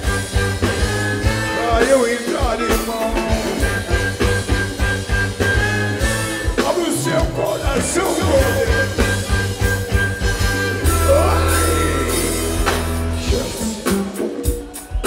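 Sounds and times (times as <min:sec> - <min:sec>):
live funk band playing: 0:00.0 - 0:15.0
man singing into a microphone: 0:01.5 - 0:03.6, 0:06.6 - 0:09.2, 0:10.9 - 0:12.6.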